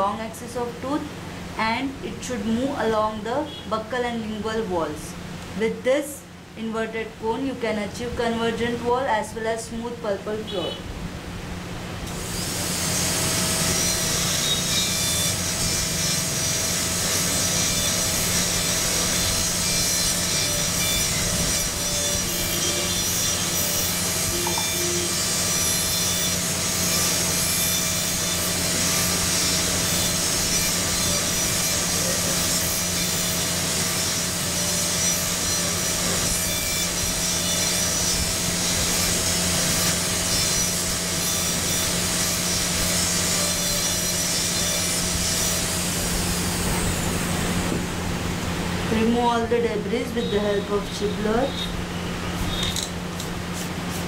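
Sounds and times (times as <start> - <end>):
dental drill whine: 12.1 - 47.8, 50.0 - 52.9.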